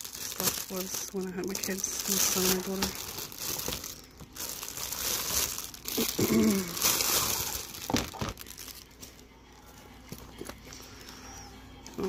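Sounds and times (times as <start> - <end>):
plastic wrapping crinkling: 0.0 - 9.3.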